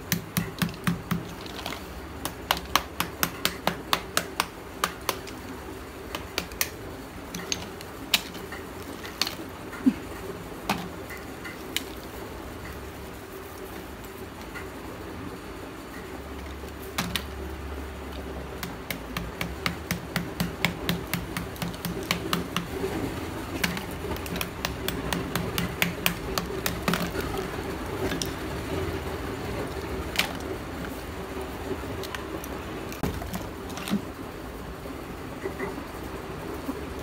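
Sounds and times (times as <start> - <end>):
small hammer tapping clay: 0.0 - 5.5, 6.1 - 9.4, 18.5 - 27.4.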